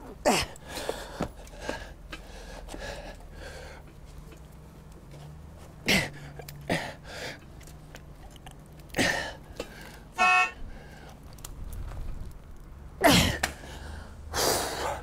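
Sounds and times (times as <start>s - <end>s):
brief honk-like tone: 10.2s - 10.6s.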